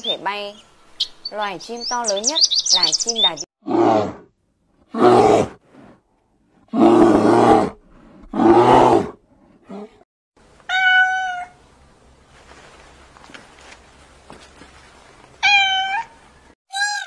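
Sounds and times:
bear growling: 0:03.6 - 0:04.3, 0:04.9 - 0:06.0, 0:06.6 - 0:10.0
kitten meowing: 0:10.7 - 0:11.6, 0:15.4 - 0:16.1.

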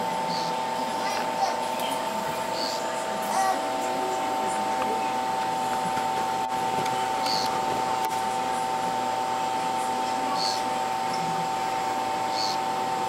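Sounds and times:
steady fan hum: 0:00.0 - 0:13.0
frog high buzzing calls: 0:00.2 - 0:00.6, 0:02.5 - 0:02.9, 0:07.2 - 0:07.6, 0:10.3 - 0:10.7, 0:12.3 - 0:12.7.

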